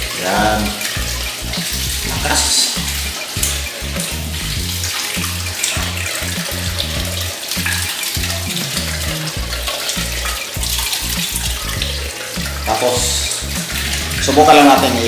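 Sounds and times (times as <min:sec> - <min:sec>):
background music with bass: 0:00.0 - 0:15.0
water pouring onto floor: 0:00.0 - 0:15.0.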